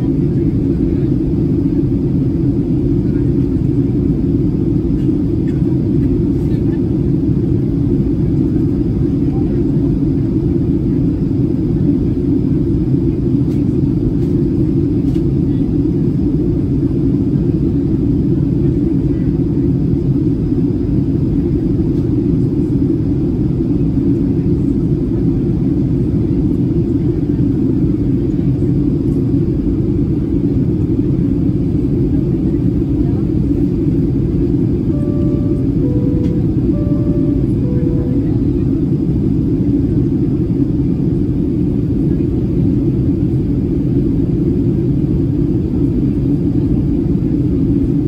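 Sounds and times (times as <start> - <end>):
airplane cabin drone: 0.0 - 48.0
two-note cabin chime: 34.9 - 38.9.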